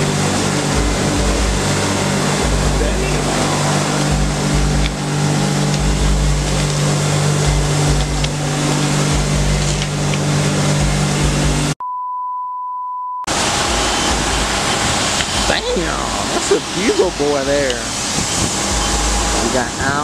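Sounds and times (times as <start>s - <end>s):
machinery hum with rushing: 0.0s - 11.8s, 13.3s - 20.0s
censor bleep tone: 11.8s - 13.3s.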